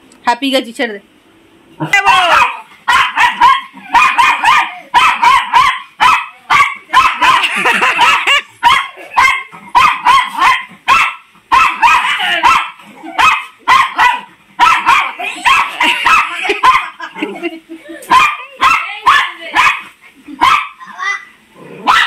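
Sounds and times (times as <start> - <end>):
small dog yapping: 1.9 - 17.0.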